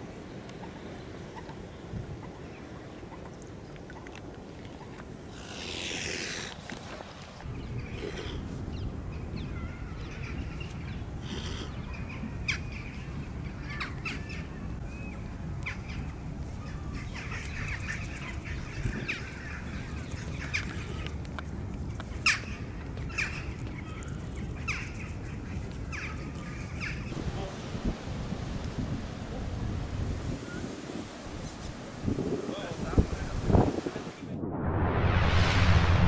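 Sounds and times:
birds calling and chirping: 7.4s - 21.2s, 21.9s - 27.2s
steady low rumble: 34.2s - 36.0s.

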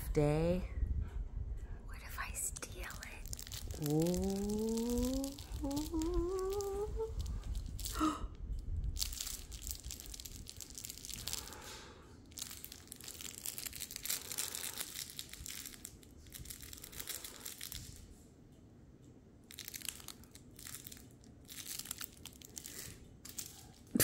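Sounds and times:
rising vocal whine: 3.6s - 7.4s.

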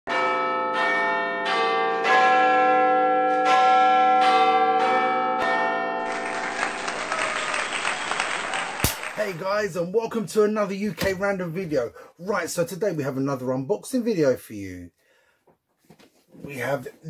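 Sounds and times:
chiming bells: 0.1s - 8.6s.

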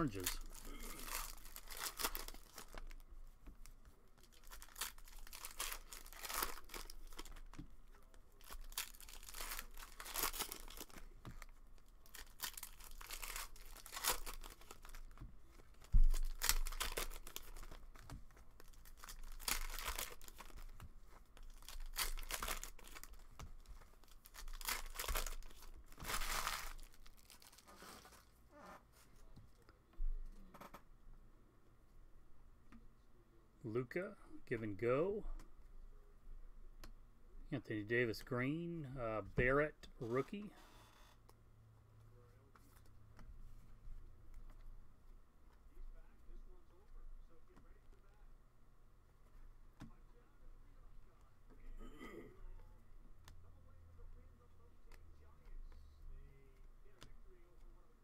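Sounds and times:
plastic wrappers tearing and crinkling: 0.0s - 3.0s, 4.2s - 28.3s.

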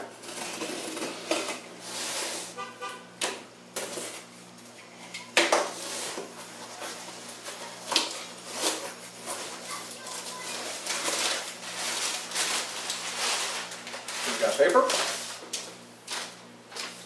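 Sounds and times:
cardboard scraping and rustling: 5.7s - 15.4s.

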